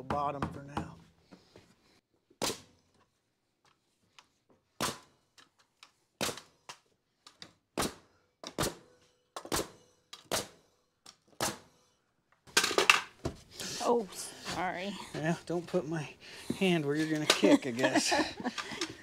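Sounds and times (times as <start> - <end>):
nail gun shots into wood: 2.4 - 2.8, 4.8 - 5.2, 6.2 - 6.8, 7.8 - 10.7, 11.3 - 11.8.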